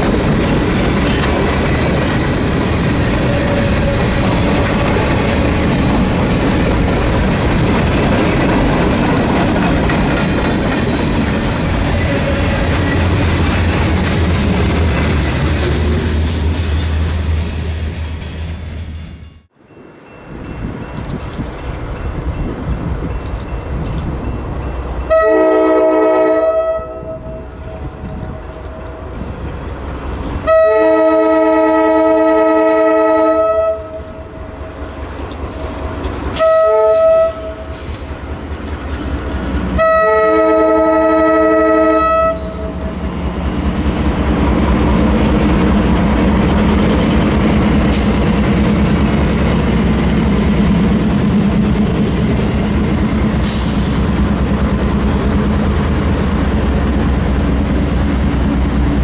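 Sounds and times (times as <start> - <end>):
train wheels on rails: 0.0 - 26.2, 26.9 - 32.6, 33.3 - 59.0
locomotive air horn blasts: 3.2 - 4.6, 25.1 - 29.1, 30.4 - 34.4, 36.4 - 37.9, 39.8 - 42.9
diesel engines: 42.4 - 59.0.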